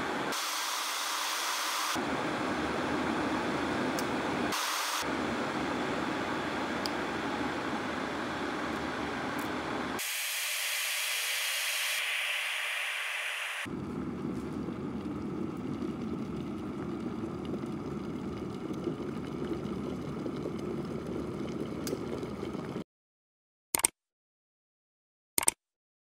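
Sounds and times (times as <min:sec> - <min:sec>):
high steamy hiss: 0:00.0 - 0:02.0, 0:04.5 - 0:05.1, 0:10.0 - 0:13.7
kettle water boiling: 0:00.0 - 0:22.8.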